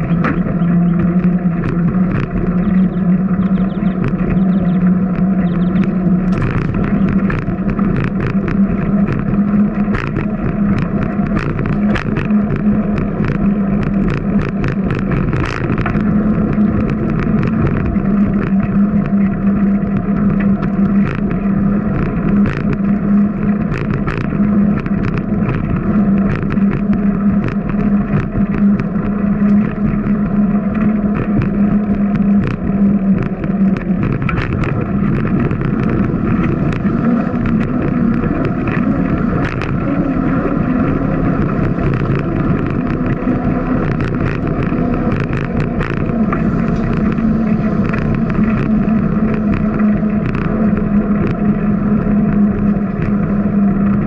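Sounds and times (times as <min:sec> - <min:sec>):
bike clicking and rattling: 0:00.0 - 0:54.0
wind rushing over microphone: 0:00.0 - 0:54.0.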